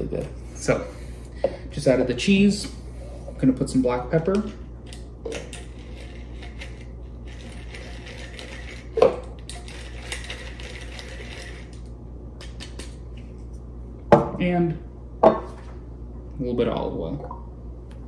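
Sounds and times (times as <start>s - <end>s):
pepper mill grinding: 4.4s - 13.0s.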